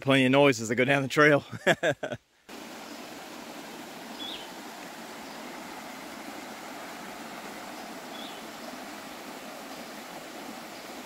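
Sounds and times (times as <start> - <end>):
creek water rushing over rocks: 2.5 - 11.0.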